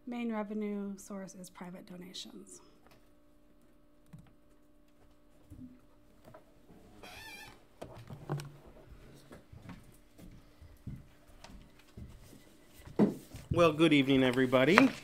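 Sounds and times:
laptop and papers handled: 11.4 - 15.0.

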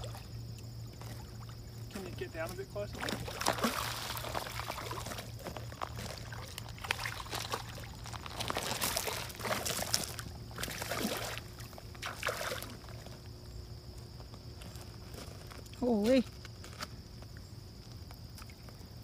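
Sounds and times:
fish splashing in water: 2.9 - 13.2.

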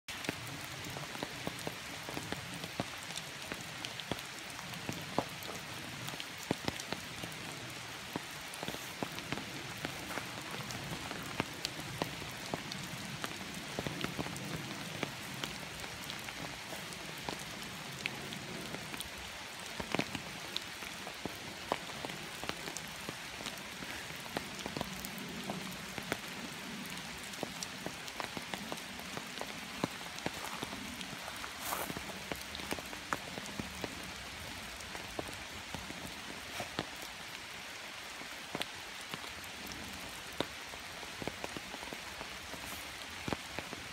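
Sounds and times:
soil pattering down: 0.1 - 26.8, 27.4 - 34.0.

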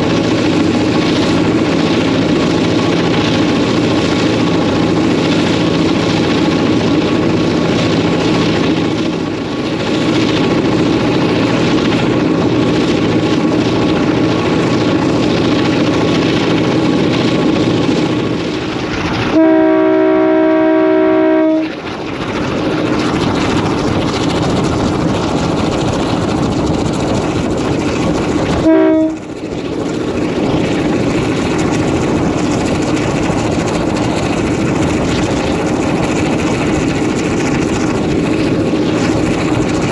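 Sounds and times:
diesel locomotive engine running: 0.0 - 39.9
locomotive air horn: 19.3 - 21.7, 28.6 - 29.2.

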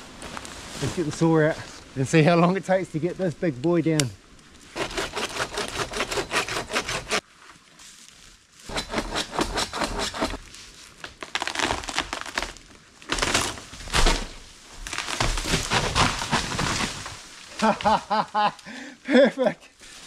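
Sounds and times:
handsaw cutting wood: 4.8 - 7.2, 8.7 - 10.4
trunk cracking and crashing: 11.1 - 18.0.

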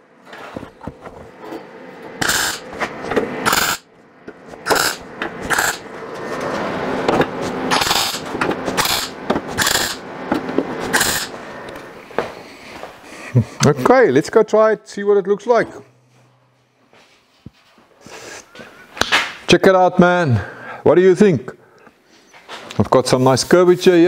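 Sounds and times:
welding arc crackle: 2.2 - 2.7, 4.6 - 5.8, 7.7 - 10.0, 10.9 - 11.3.

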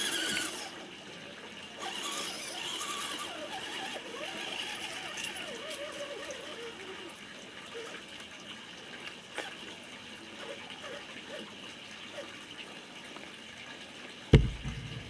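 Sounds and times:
rc car motor whirring: 0.0 - 0.9, 1.8 - 8.1, 9.4 - 9.7, 10.4 - 11.5
loud thump: 14.3 - 15.0.

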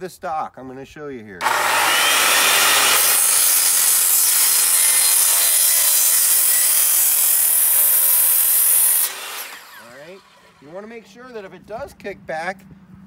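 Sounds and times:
circular saw cutting wood: 1.4 - 11.4.

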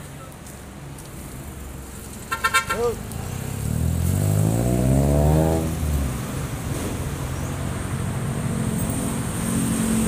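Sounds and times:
road traffic noise: 0.0 - 10.0
car accelerating past: 3.4 - 10.0.

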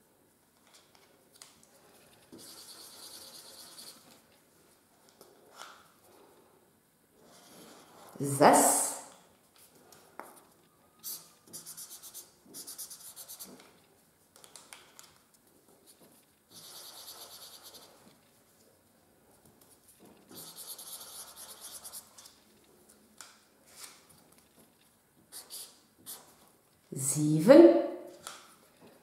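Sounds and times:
markers scribbling on paper: 2.3 - 4.2, 11.0 - 13.8, 16.5 - 18.1, 20.2 - 22.4, 25.3 - 26.5.

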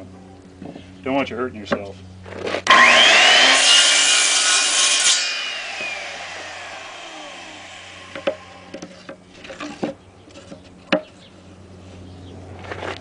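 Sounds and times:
saw blade whine spinning down: 2.7 - 8.8
circular saw cutting wood: 2.7 - 9.1.

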